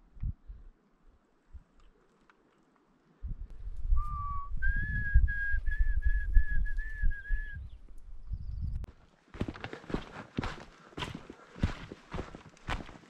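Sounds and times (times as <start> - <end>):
person whistling a tune: 3.9 - 7.7.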